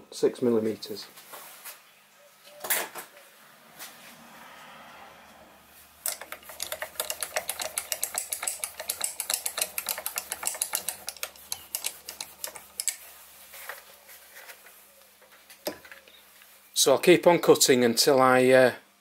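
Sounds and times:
milling machine clattering ticks: 0:06.0 - 0:13.0.

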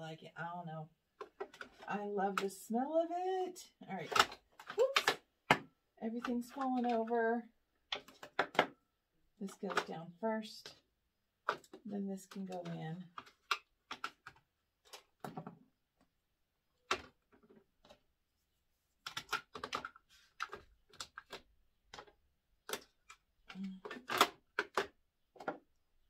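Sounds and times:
plastic items clicking into organizer: 0:04.0 - 0:07.1, 0:19.0 - 0:25.7.

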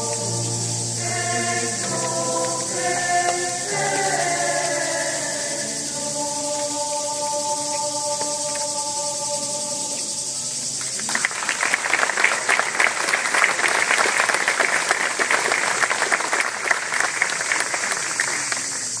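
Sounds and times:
audience applauding: 0:10.8 - 0:19.0.

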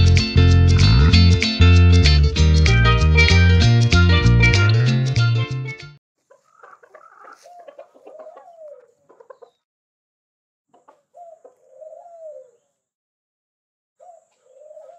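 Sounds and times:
chicken clucking: 0:06.2 - 0:09.6, 0:10.7 - 0:12.7, 0:14.3 - 0:14.9.

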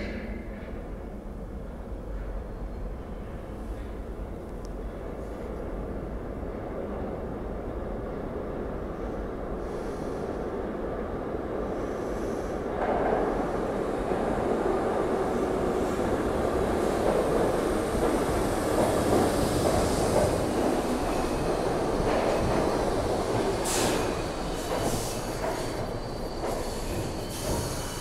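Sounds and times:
subway train rumble: 0:00.0 - 0:28.0
high-pitched train squeals: 0:19.8 - 0:28.0.

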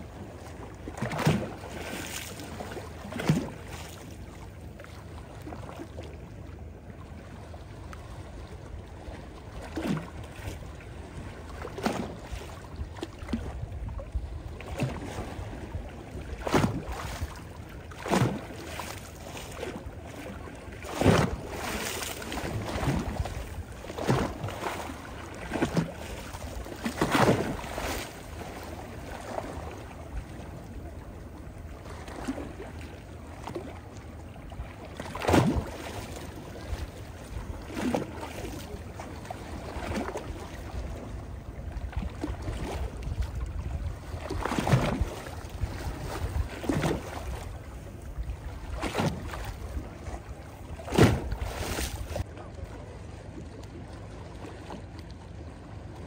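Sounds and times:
small waves lapping over stones: 0:00.0 - 0:06.1, 0:08.5 - 0:33.9, 0:34.5 - 0:41.1, 0:42.0 - 0:47.5, 0:48.4 - 0:52.3.

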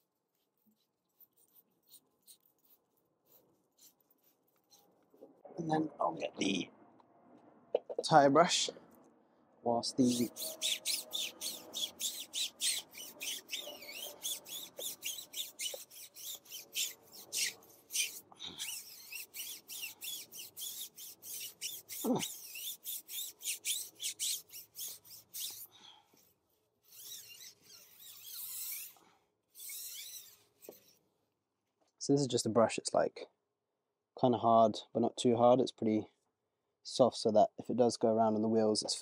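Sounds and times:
brush scrubbing a tyre: 0:10.0 - 0:25.7.

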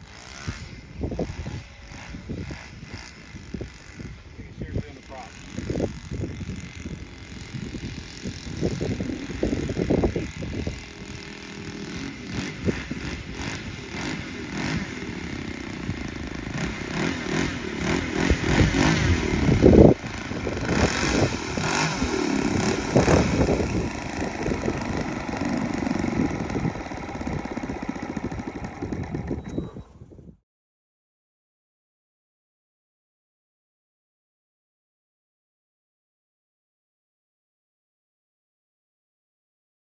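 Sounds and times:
model airplane engine running: 0:00.0 - 0:29.8.

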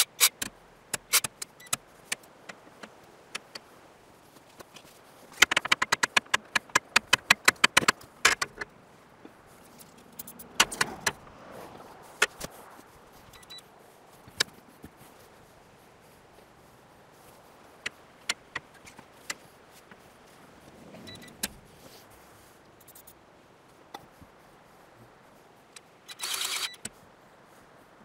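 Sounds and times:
grease gun clicks and knocks: 0:05.3 - 0:08.7.

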